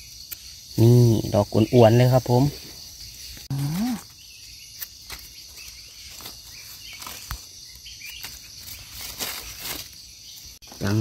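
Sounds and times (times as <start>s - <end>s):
forest insects droning: 0.0s - 11.0s
man humming: 3.5s - 4.0s
dry leaves rustling: 4.9s - 10.6s.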